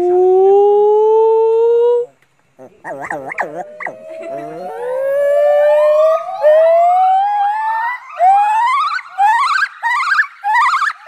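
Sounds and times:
gibbon calling loudly: 2.6 - 11.0.

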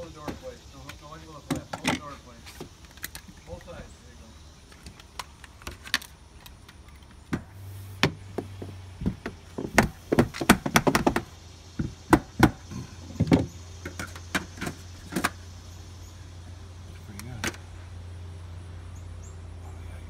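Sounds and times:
steady low hum: 0.0 - 20.0
clicks taps and knocks: 4.8 - 12.6.

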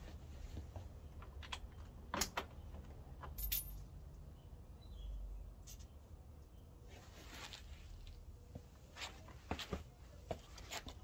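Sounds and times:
metal tools clinking: 3.4 - 3.9.

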